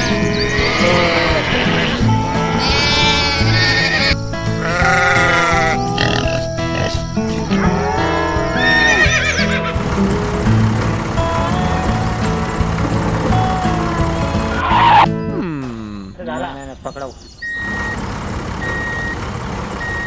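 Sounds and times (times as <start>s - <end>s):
wavering animal calls: 0.0s - 9.8s, 11.2s - 15.5s
country blues music: 0.0s - 16.3s.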